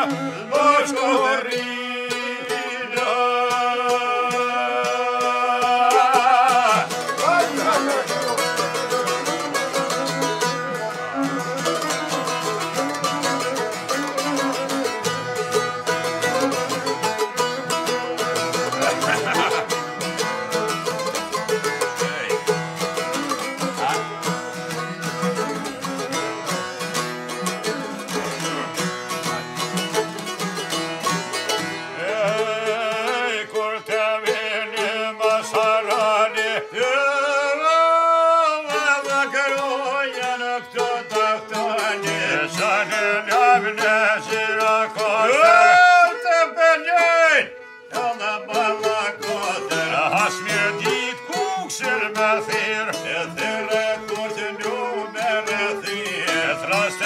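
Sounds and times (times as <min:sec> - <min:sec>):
man singing: 0:00.0 - 0:10.2, 0:18.4 - 0:20.4, 0:21.4 - 0:22.6, 0:23.2 - 0:24.2, 0:31.9 - 0:57.0
plucked lute folk music: 0:00.0 - 0:57.0.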